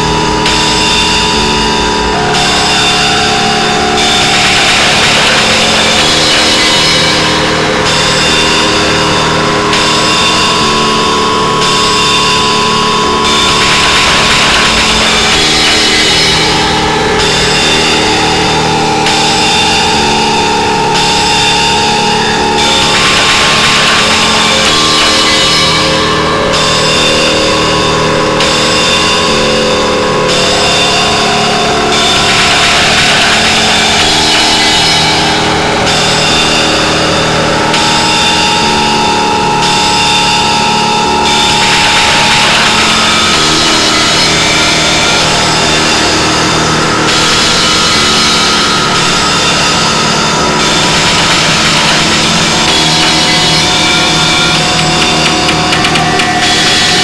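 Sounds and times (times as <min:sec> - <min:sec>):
distorted droning tones: 0:00.0 - 0:57.0.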